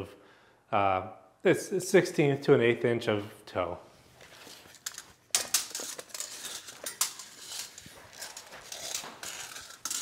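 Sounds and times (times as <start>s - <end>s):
tape measure scraping on concrete: 4.2s - 10.0s.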